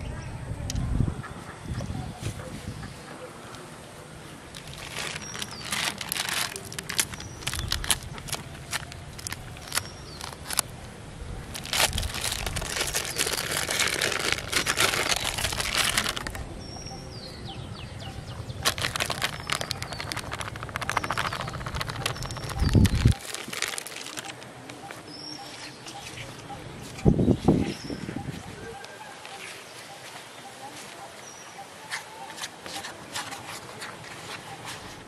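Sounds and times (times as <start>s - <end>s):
plastic packet crinkling: 4.5s - 10.7s, 11.4s - 16.4s, 18.6s - 24.5s.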